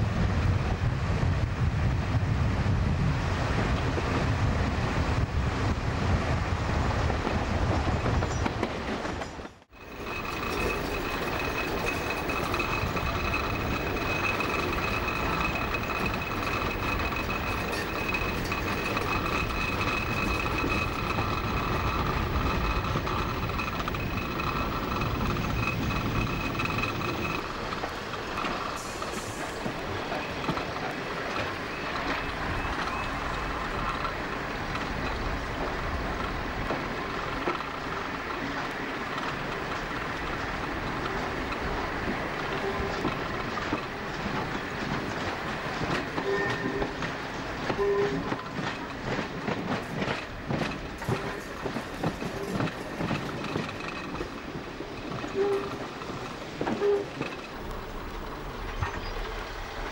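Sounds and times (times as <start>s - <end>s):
wind rush: 0.0s - 9.0s, 9.8s - 38.1s
train engine and wheel rumble: 0.0s - 59.9s
high-pitched whine: 9.7s - 30.6s, 57.2s - 59.9s.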